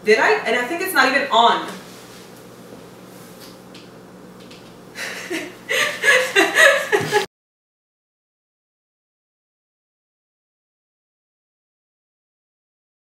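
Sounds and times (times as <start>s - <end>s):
faint electrical hum: 0.0s - 7.3s
woman laughing: 5.0s - 7.3s.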